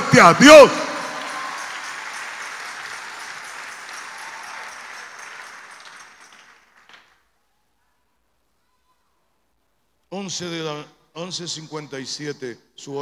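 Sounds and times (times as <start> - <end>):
congregation applauding: 0.0 - 7.4.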